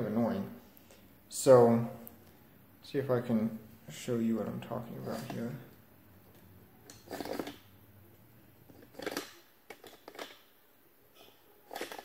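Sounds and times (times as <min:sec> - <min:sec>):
handling scraping and clicking: 0:04.9 - 0:07.7, 0:08.6 - 0:10.5, 0:11.2 - 0:12.0.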